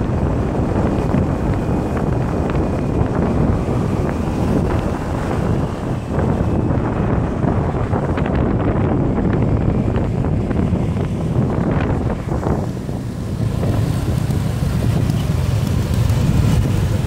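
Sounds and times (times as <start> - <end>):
road noise: 0.0 - 17.0
scooter engine: 0.0 - 17.0
wind buffeting microphone: 0.0 - 17.0.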